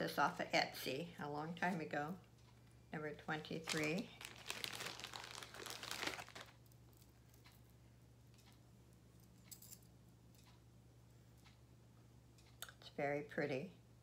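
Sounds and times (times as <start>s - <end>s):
low steady hum: 0.0s - 14.0s
plastic packaging crinkling: 3.4s - 6.6s.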